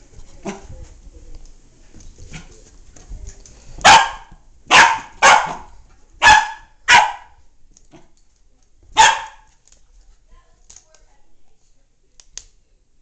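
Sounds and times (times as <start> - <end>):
puppy barking: 3.8 - 7.4, 9.0 - 9.5.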